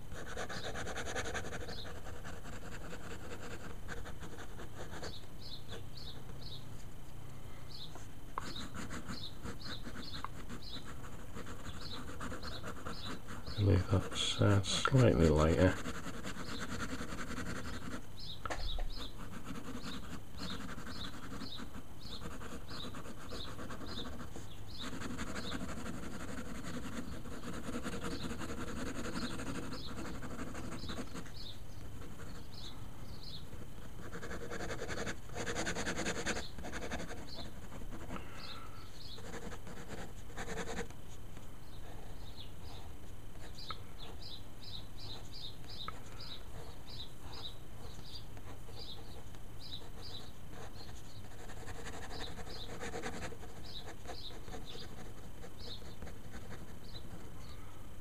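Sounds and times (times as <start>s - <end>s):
pen scratching on paper: 0.1s - 5.2s, 8.4s - 14.5s, 15.2s - 18.0s, 18.9s - 32.5s, 33.6s - 38.2s, 39.2s - 40.9s, 49.8s - 57.2s
small bird chirping: 0.4s - 2.0s, 4.8s - 6.7s, 7.7s - 15.7s, 16.4s - 33.6s, 35.4s - 37.6s, 38.2s - 39.4s, 41.6s - 57.7s.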